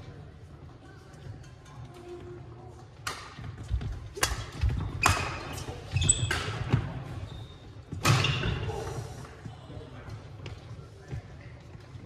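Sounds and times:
racket hitting shuttlecock: 4.2s - 5.7s.

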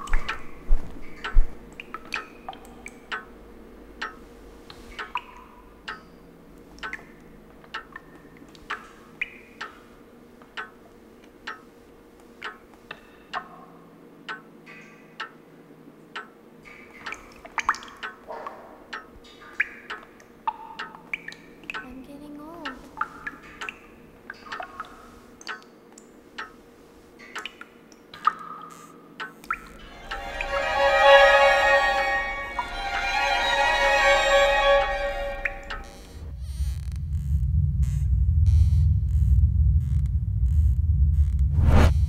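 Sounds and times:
water dripping: 0.0s - 15.4s, 16.1s - 22.0s, 22.6s - 30.6s
faint steady hum: 0.0s - 42.0s.

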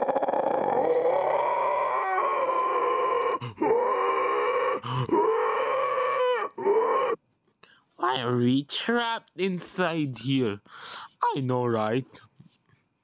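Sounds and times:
person howling groans: 0.0s - 7.2s.

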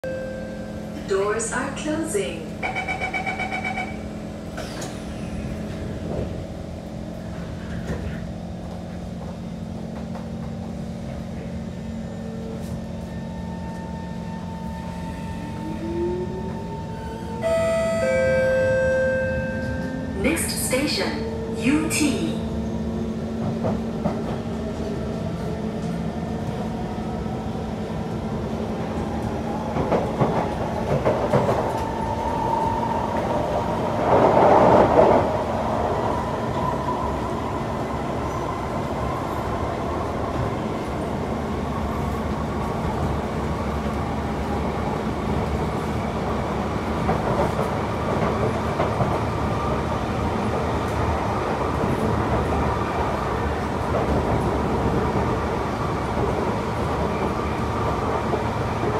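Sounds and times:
train wheels rumbling on track: 0.6s - 58.9s.

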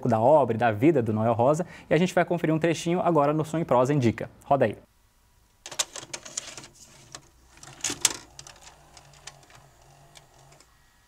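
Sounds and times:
cassette mechanism clicking and clunking: 5.6s - 10.8s
small motor whirring: 7.7s - 11.0s.

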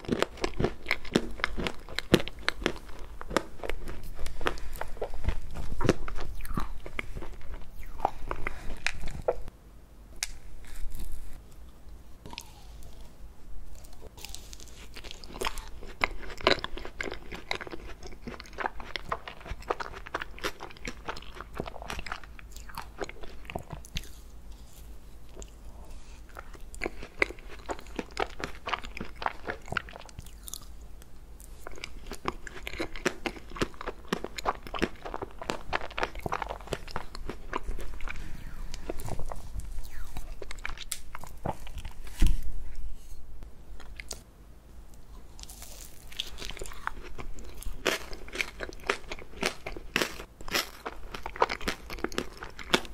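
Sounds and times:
crunchy bites and chewing: 0.0s - 9.3s, 12.2s - 13.0s, 13.8s - 24.2s, 26.3s - 30.8s, 31.6s - 42.4s, 45.4s - 52.9s.

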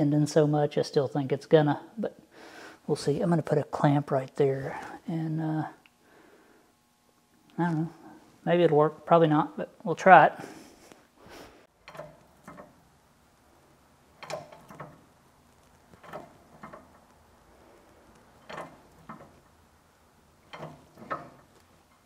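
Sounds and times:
hydraulic press clicks and knocks: 11.8s - 12.8s, 14.2s - 15.1s, 15.9s - 17.1s, 18.4s - 19.6s, 20.4s - 22.0s.

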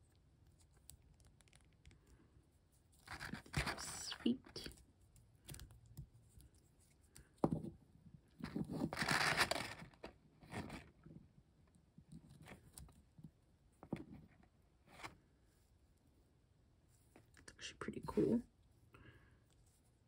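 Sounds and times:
paper rustling: 3.0s - 4.7s, 8.4s - 10.8s.

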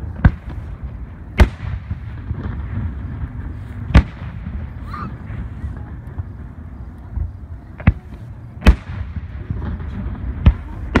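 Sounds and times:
fireworks bangs: 0.0s - 11.0s
steady low rumble: 0.0s - 11.0s.

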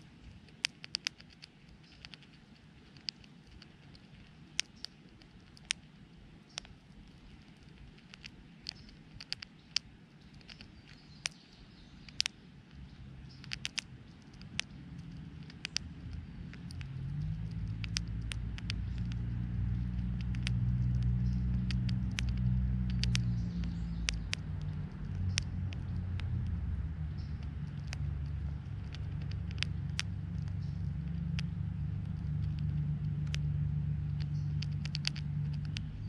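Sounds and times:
chipmunk cracking seeds: 0.0s - 36.0s
low engine hum: 10.4s - 36.0s.

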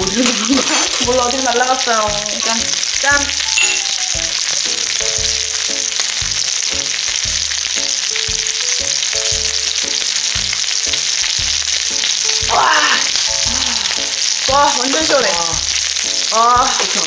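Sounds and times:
background music with bass line: 0.0s - 17.0s
meat sizzling on a grill pan: 0.0s - 17.0s.

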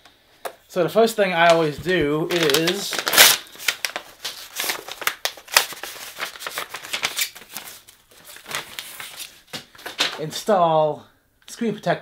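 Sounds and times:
paper packaging rustling: 1.0s - 10.5s.

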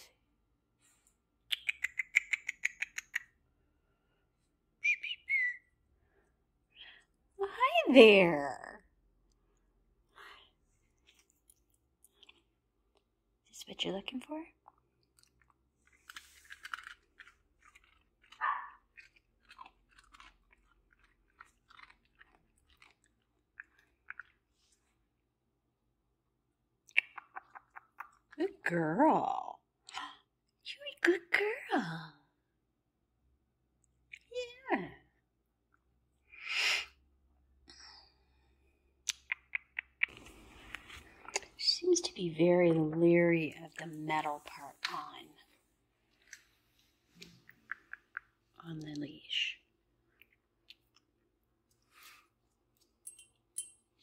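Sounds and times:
bird chirps: 1.5s - 3.3s, 4.8s - 5.8s
bird squeaky calls: 4.8s - 5.6s
dog crunching a treat: 15.9s - 24.3s.

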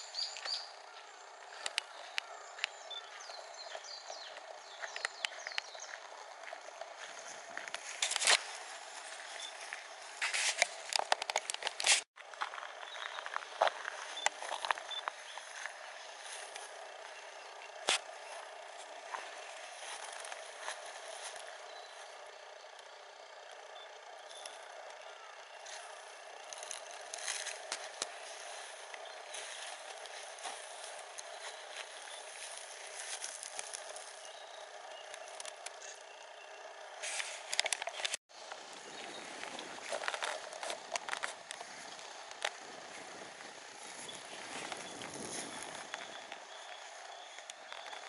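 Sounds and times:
outdoor background hiss: 0.0s - 48.0s
sharp crackling clicks: 1.6s - 2.8s, 9.2s - 16.8s, 22.7s - 34.3s, 35.0s - 36.2s, 37.0s - 38.6s, 39.4s - 42.7s, 44.1s - 48.0s.

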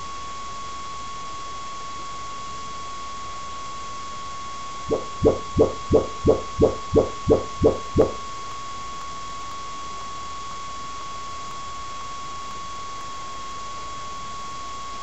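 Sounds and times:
short low speaker test pulses: 4.9s - 8.2s.

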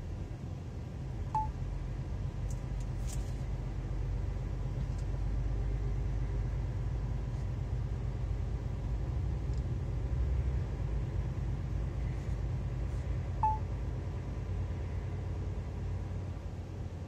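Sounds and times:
lorry engine rumble: 0.0s - 17.0s
road noise: 0.0s - 17.0s
short electronic beep: 1.4s - 1.6s, 13.4s - 13.6s.

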